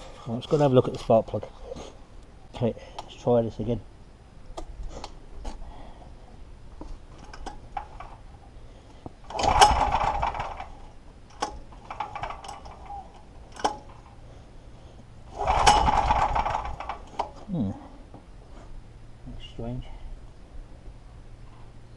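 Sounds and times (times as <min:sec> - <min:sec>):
handling clicks and knocks: 0:06.8 - 0:08.2, 0:09.0 - 0:14.2
engine pull-start whirring: 0:07.2 - 0:08.2, 0:09.2 - 0:14.2, 0:15.3 - 0:17.4.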